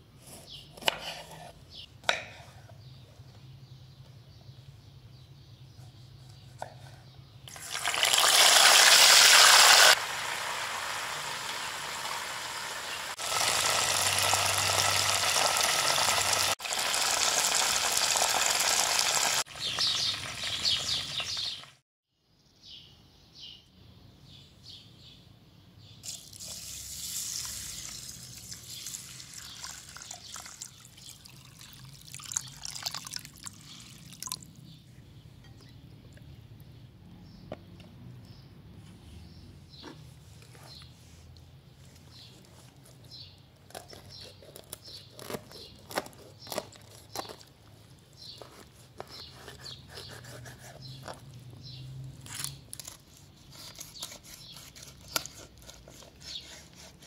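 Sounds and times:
hot oil sizzling: 7.5s - 21.8s, 26.0s - 29.9s
water pouring and sloshing: 27.4s - 34.5s.

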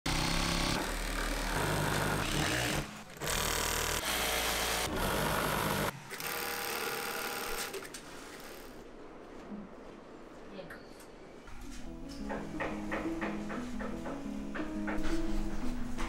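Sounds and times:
industrial sewing machines running: 0.1s - 7.8s.

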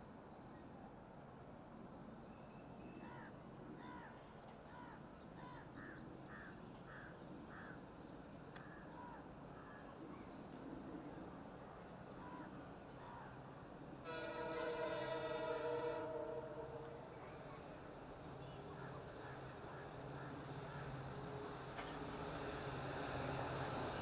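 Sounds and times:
crows cawing: 4.8s - 7.8s.

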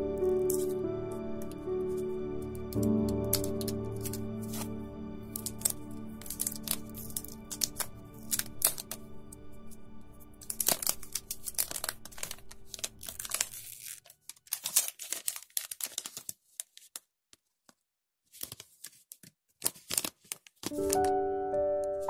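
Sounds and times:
background music: 0.0s - 13.8s, 20.7s - 22.0s
plastic film crackling: 0.1s - 17.6s, 18.3s - 21.2s.

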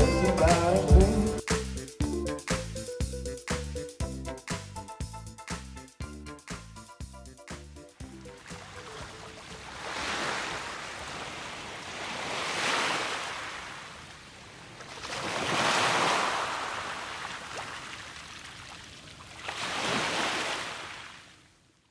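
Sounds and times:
sea waves washing onto beach: 8.4s - 21.2s.

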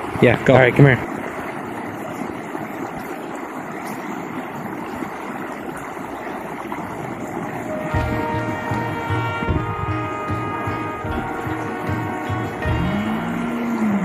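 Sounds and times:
creek rushing over rocks: 0.0s - 14.0s
music: 7.7s - 14.0s.

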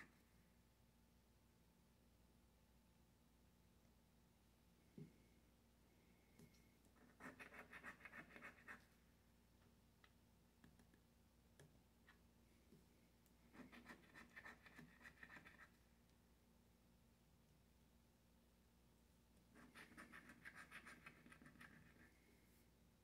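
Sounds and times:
scratch-off ticket being scratched: 7.0s - 8.8s, 13.5s - 15.7s, 19.6s - 22.1s.

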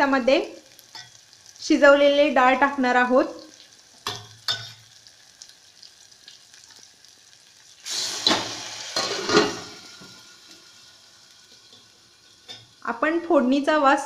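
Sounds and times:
food sizzling in hot oil: 0.0s - 14.0s
metal lid clanking: 8.2s - 9.7s.

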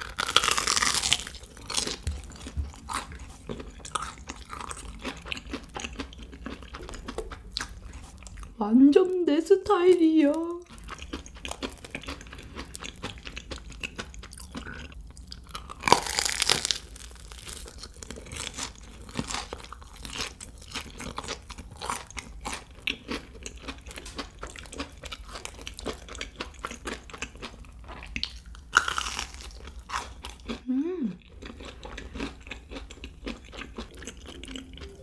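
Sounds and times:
crunchy bite into sandwich: 0.0s - 2.2s, 15.5s - 19.5s
chewing crackles: 0.0s - 8.6s, 10.6s - 30.6s, 31.2s - 35.0s.

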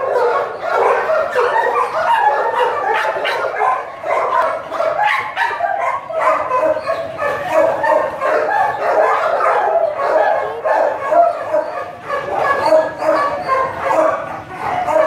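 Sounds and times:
dogs barking and yipping: 0.0s - 15.0s.

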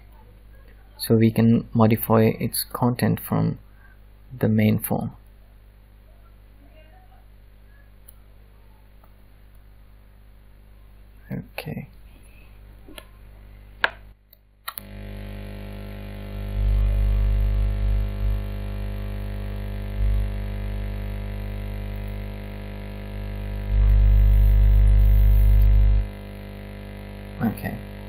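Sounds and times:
electrical mains hum: 0.0s - 28.0s
clicks: 13.8s - 15.0s.

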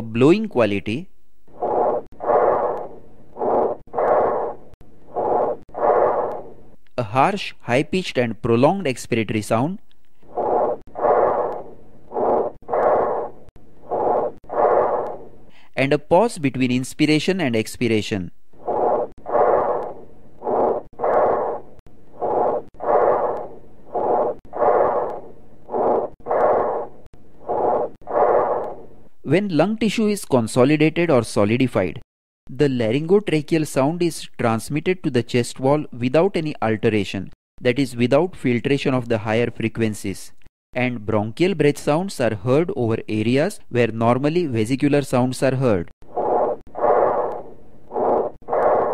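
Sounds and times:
harsh breathing: 13.9s - 15.8s
breathing through a stethoscope: 15.5s - 15.8s.

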